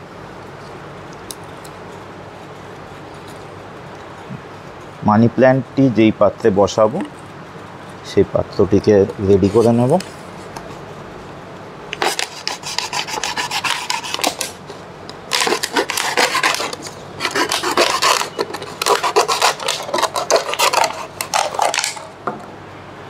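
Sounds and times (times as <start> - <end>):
knife sawing through plastic bottle: 12.0 - 14.6, 15.3 - 22.0.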